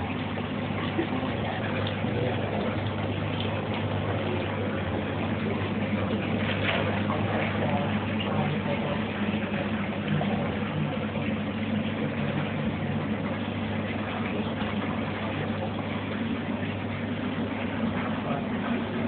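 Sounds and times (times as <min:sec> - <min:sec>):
filter pump humming: 0:00.0 - 0:19.0
water trickling and splashing: 0:00.0 - 0:19.0.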